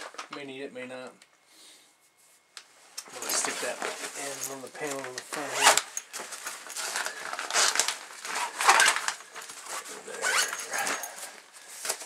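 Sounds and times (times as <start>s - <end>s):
fabric rustling and scraping: 2.1s - 12.0s
zipper runs: 9.6s - 11.3s.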